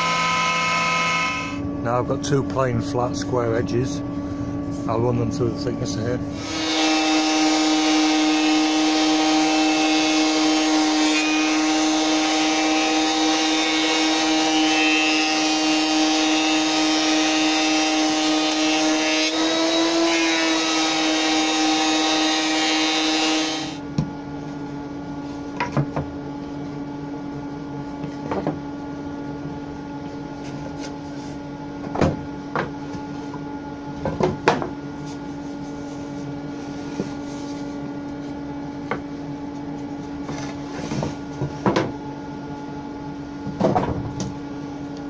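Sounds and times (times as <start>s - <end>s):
steady machine hum: 0.0s - 14.5s.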